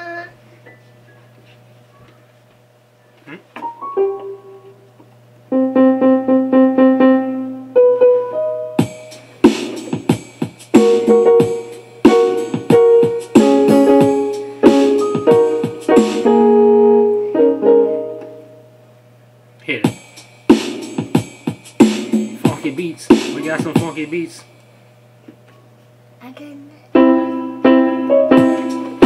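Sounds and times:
electronic keyboard piano notes: 3.6s - 18.8s, 26.9s - 29.0s.

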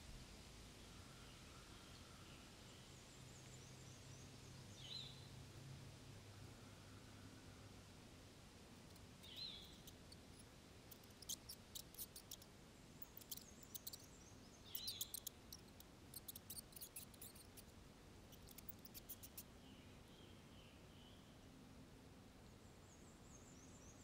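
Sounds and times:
sharp high-pitched ticks: 8.9s - 14.1s, 14.7s - 17.7s, 18.3s - 19.5s.

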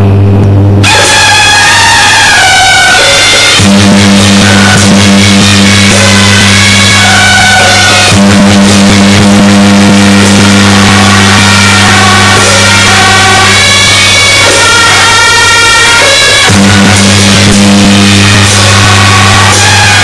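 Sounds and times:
steady low hum: 0.0s - 0.9s
drum and cymbal strikes: 0.8s - 20.0s
shrill wind instruments melody: 0.8s - 20.0s.

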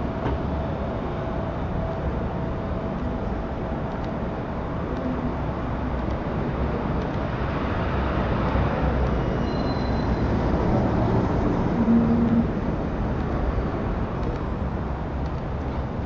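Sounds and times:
city traffic rumble: 0.0s - 16.0s.

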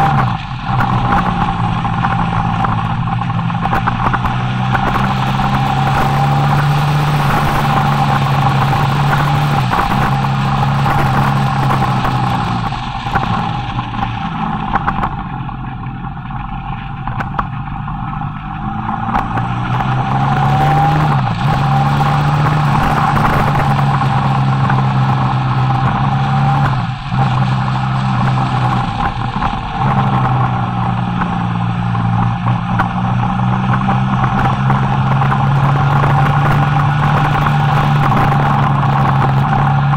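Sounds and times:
motorcycle engine running: 0.0s - 39.9s
wind rushing over microphone: 0.0s - 39.9s.

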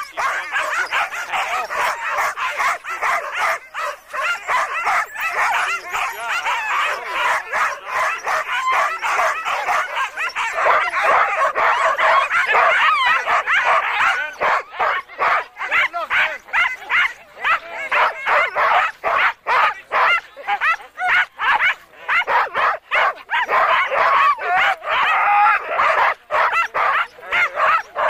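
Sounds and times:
dogs barking and yelping: 0.0s - 28.0s.

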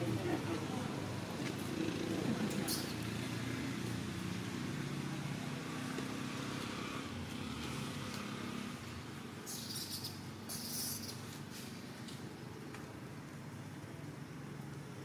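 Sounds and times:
short bursts of hiss: 9.5s - 11.8s.

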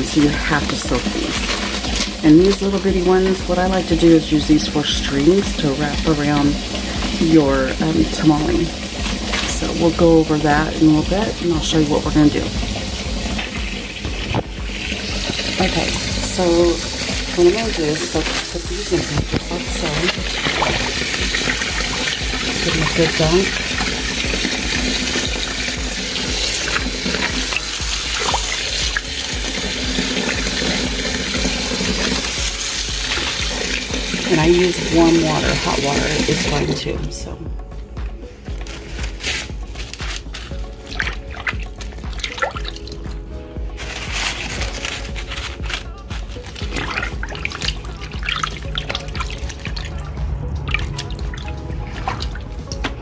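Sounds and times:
small splashes: 0.0s - 36.8s, 38.4s - 53.0s
tap running into sink: 0.0s - 36.8s
background music: 0.0s - 53.0s.

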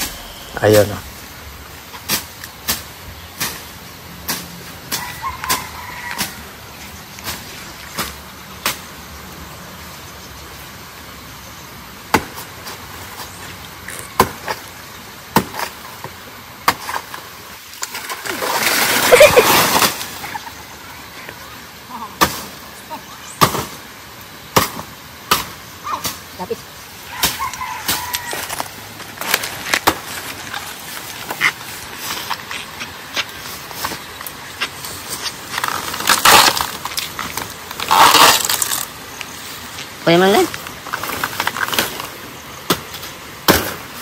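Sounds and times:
chopping into plant trunk: 12.1s - 12.4s, 14.2s - 14.6s, 15.3s - 15.8s, 23.4s - 23.8s, 24.5s - 26.2s, 42.7s - 43.8s
plant falling with swishing leaves: 17.8s - 20.6s.

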